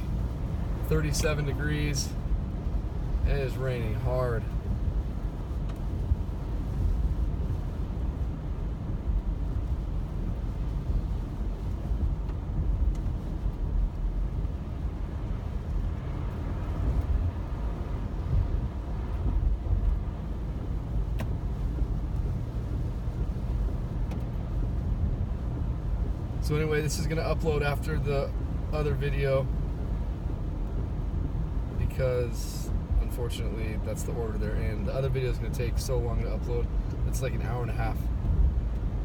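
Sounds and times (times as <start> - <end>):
car engine and tyres rumble: 0.0 - 39.0
light ticking: 19.8 - 26.2.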